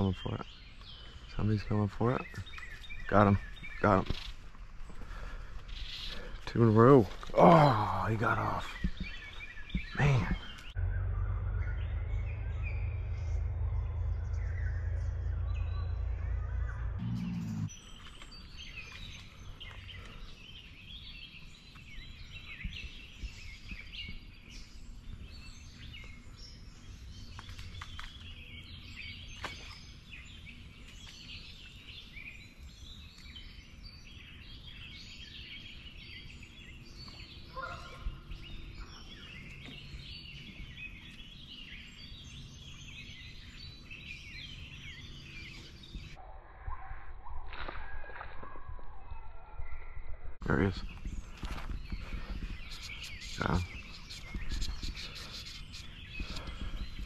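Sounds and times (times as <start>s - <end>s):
birds chirping and singing: 0.0s - 47.5s, 48.2s - 57.0s
lower-pitched bird call: 9.8s - 17.8s
low steady rumble: 10.7s - 17.7s.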